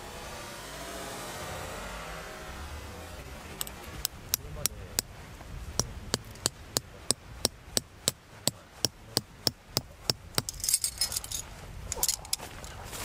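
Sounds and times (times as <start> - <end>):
hammer striking metal tent peg: 5.8 - 11.0
metal tent pegs clinking: 10.0 - 12.8.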